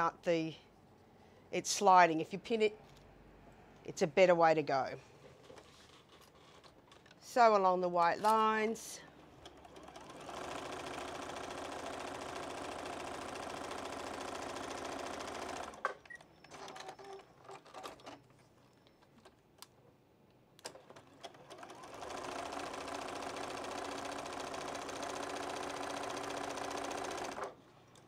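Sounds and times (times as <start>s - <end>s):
sewing machine stitching: 9.4s - 18.2s, 20.7s - 27.6s.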